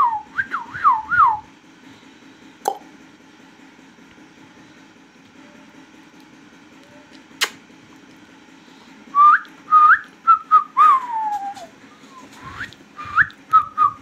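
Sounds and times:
sharp click: 0:07.4 - 0:07.6
whistled phrase: 0:09.2 - 0:14.0.

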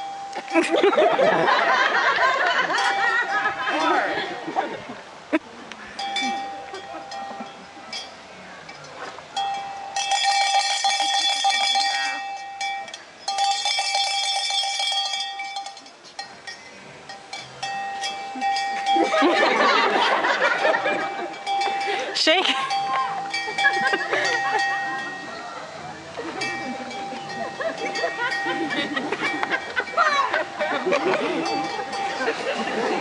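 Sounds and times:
small metal bell ringing rapidly: 0:06.0 - 0:08.3, 0:09.4 - 0:25.6, 0:26.4 - 0:33.0.

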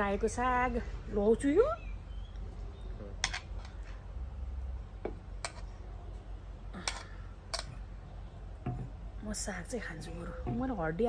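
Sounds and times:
metal spoon clinking on plates: 0:06.8 - 0:07.8.

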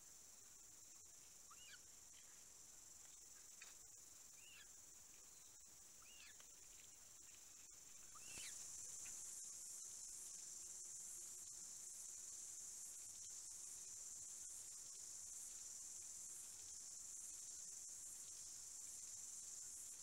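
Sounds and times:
small bird chirping: 0:01.4 - 0:02.4, 0:04.4 - 0:10.4
high-pitched insect buzz: 0:03.1 - 0:20.0.

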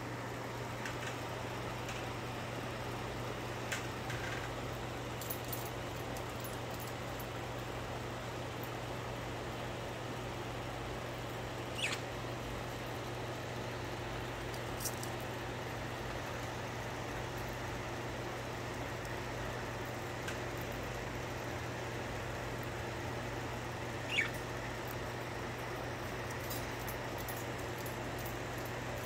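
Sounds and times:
steady low hum: 0:00.0 - 0:29.0
budgerigar chirps: 0:11.7 - 0:12.1, 0:24.1 - 0:24.4.

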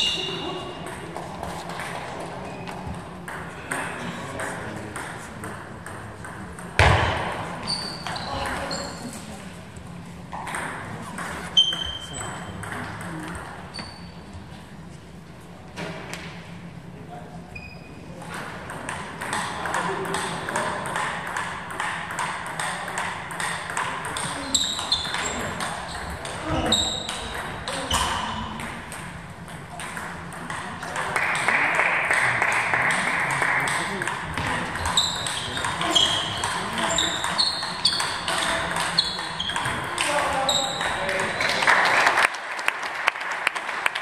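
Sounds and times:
table tennis ball ticking: 0:34.8 - 0:40.1.

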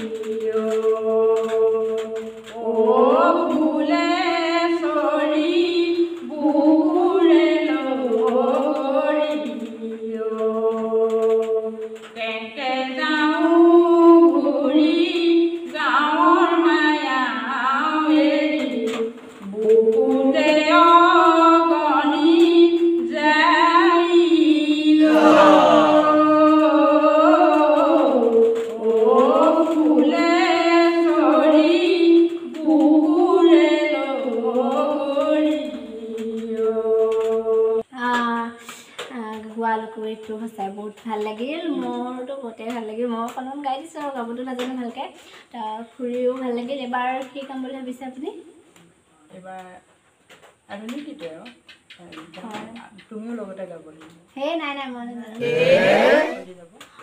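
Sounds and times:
woman singing unaccompanied: 0:00.0 - 0:48.3, 0:52.3 - 0:53.6
singer breathing: 0:38.6 - 0:39.0, 0:45.2 - 0:45.5.

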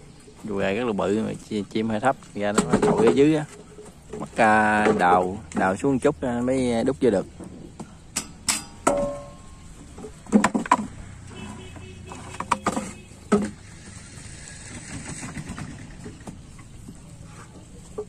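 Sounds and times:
wooden planks knocking: 0:02.4 - 0:05.8, 0:08.8 - 0:13.7
ringing metal clank: 0:08.1 - 0:09.7.

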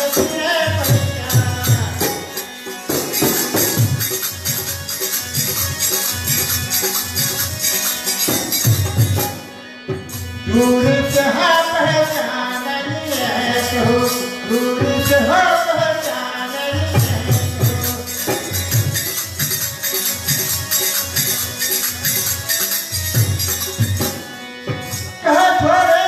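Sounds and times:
person singing: 0:00.0 - 0:02.4, 0:10.5 - 0:18.5
dholak drum: 0:00.0 - 0:26.0
harmonium: 0:00.0 - 0:26.0
jingling hand percussion: 0:00.0 - 0:26.0.

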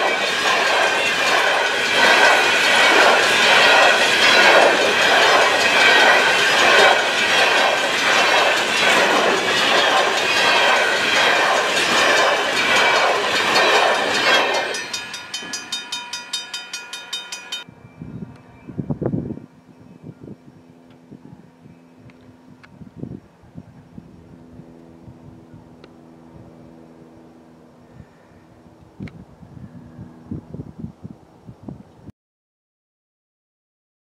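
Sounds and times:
freight cars rattling: 0:00.0 - 0:17.6
train wheels clacking on rails: 0:00.0 - 0:17.7.

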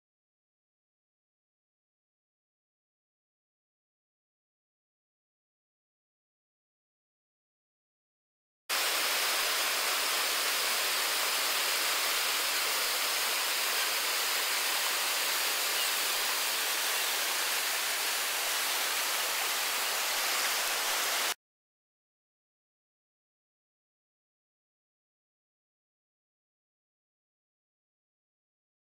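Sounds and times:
whitewater rushing: 0:08.7 - 0:21.4.

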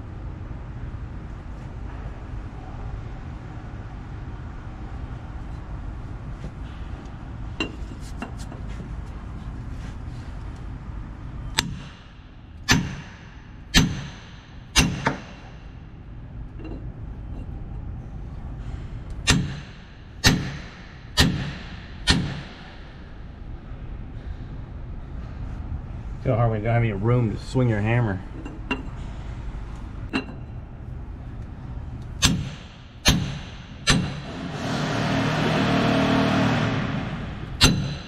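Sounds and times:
hammer striking steel pipe: 0:12.7 - 0:15.6, 0:19.2 - 0:22.7, 0:32.2 - 0:34.2, 0:37.6 - 0:38.0.

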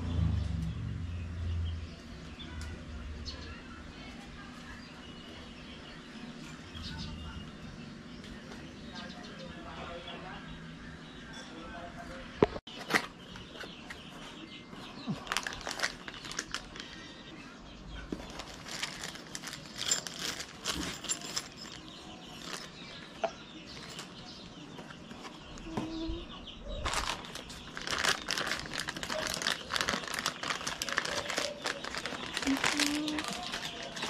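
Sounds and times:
cardboard packaging crinkling: 0:15.1 - 0:17.0, 0:18.1 - 0:22.8, 0:26.8 - 0:34.0
plastic bag rustling: 0:15.1 - 0:17.0, 0:18.1 - 0:23.1, 0:26.8 - 0:34.0.

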